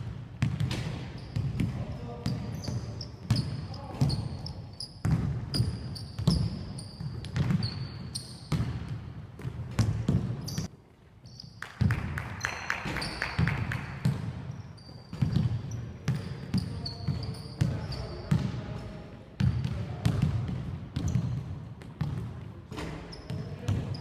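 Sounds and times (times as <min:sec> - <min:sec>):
basketballs bouncing on hardwood: 0:00.0 - 0:10.7, 0:15.1 - 0:18.6, 0:19.4 - 0:24.0
sneakers squeaking: 0:00.0 - 0:24.0.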